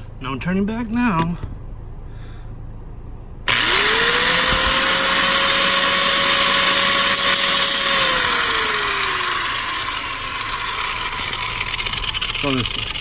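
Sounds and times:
angle grinder cutting steel: 0:03.5 - 0:13.0
grinder motor whine: 0:03.5 - 0:13.0.

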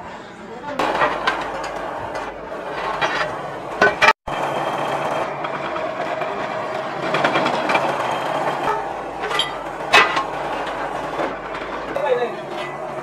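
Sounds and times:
sharp metal clanks: 0:05.3 - 0:13.0.

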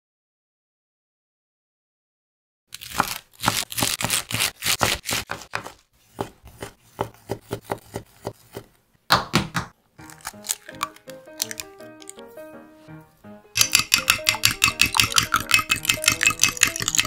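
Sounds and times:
knife chopping on wooden board: 0:02.8 - 0:11.7
gentle melody: 0:10.0 - 0:17.0.

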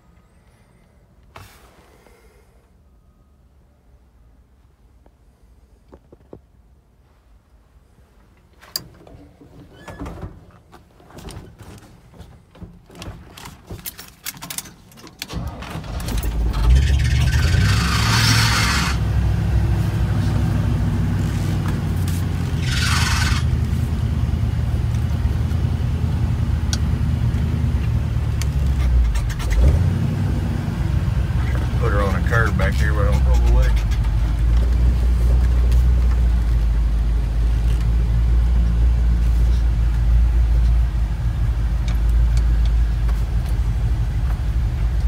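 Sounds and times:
truck engine starting and idling: 0:14.1 - 0:45.0.

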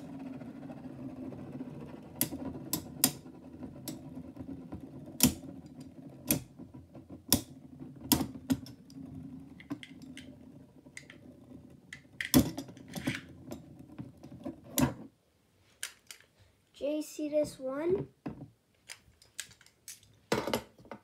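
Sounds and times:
spinning tops whirring: 0:00.0 - 0:13.4.

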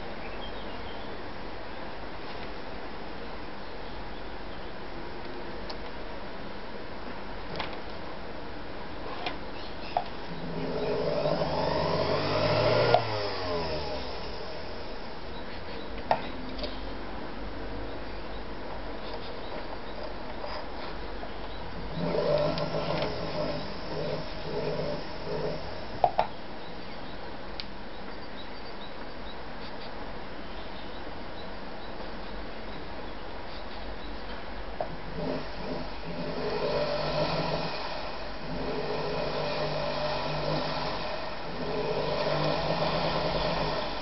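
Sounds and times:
steady background hiss: 0:00.0 - 0:44.0
sewing machine motor running: 0:10.3 - 0:15.2, 0:21.8 - 0:26.1, 0:35.0 - 0:44.0.

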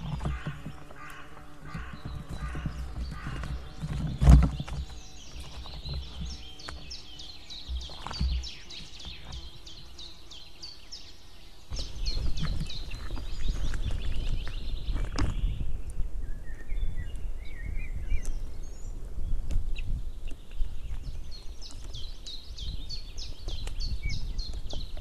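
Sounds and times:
high-pitched bird calls: 0:00.0 - 0:15.6
low wind rumble: 0:00.0 - 0:25.0.

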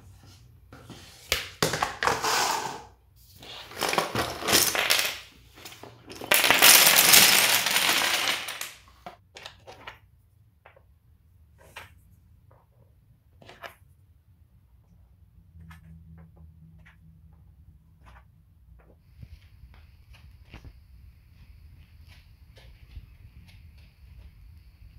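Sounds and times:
wooden blocks rattling in tub: 0:01.6 - 0:10.0
wooden blocks clattering onto floor: 0:03.6 - 0:10.0.

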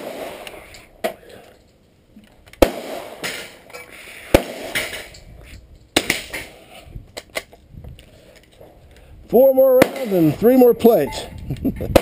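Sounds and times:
sharp gunshots: 0:00.0 - 0:00.5, 0:02.6 - 0:03.6, 0:04.3 - 0:05.1, 0:09.7 - 0:10.6
gun handling noise: 0:00.4 - 0:02.6, 0:04.7 - 0:09.2.

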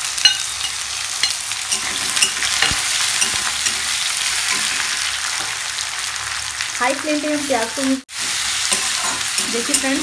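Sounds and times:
onions sizzling in oil: 0:00.0 - 0:10.0
spatula scraping pan: 0:00.7 - 0:05.6, 0:08.1 - 0:10.0.

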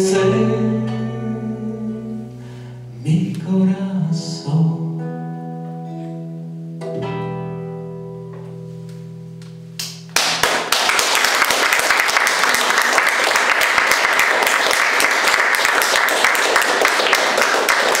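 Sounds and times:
guitar chord ringing: 0:00.0 - 0:03.2, 0:04.4 - 0:10.3
audience applause: 0:10.2 - 0:18.0.

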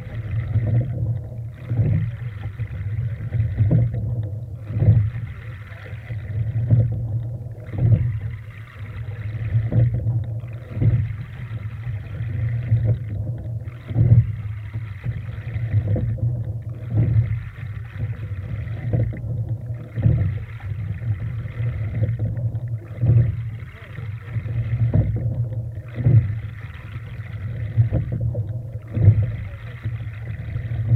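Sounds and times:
water rushing along hull: 0:00.0 - 0:30.9
wind rumbling on microphone: 0:00.0 - 0:30.9
oar knock: 0:09.5 - 0:11.1, 0:12.7 - 0:14.3, 0:18.8 - 0:20.4, 0:22.0 - 0:23.4, 0:24.3 - 0:26.4, 0:27.7 - 0:29.4.

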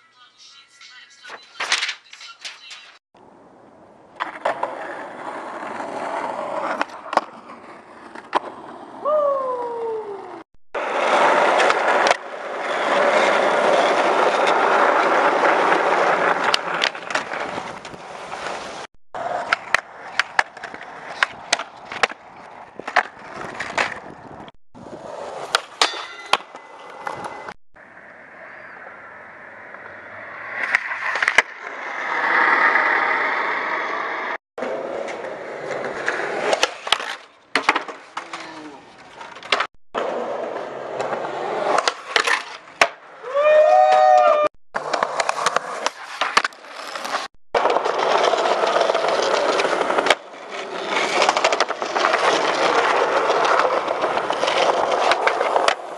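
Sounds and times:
skateboard wheels rolling on concrete: 0:00.3 - 0:55.9
skateboard pops and clacks: 0:06.6 - 0:08.6, 0:11.5 - 0:12.3, 0:16.3 - 0:18.5, 0:19.2 - 0:24.1, 0:30.6 - 0:31.6, 0:35.0 - 0:38.5, 0:40.9 - 0:43.0, 0:44.8 - 0:55.9.

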